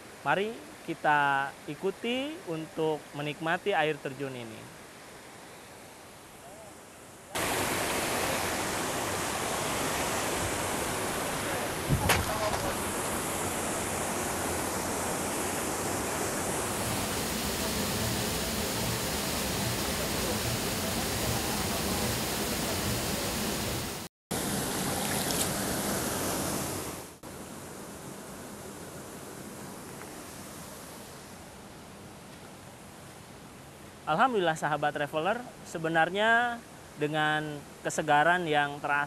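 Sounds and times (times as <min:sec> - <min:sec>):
waterfall rushing: 0:07.4 - 0:27.2.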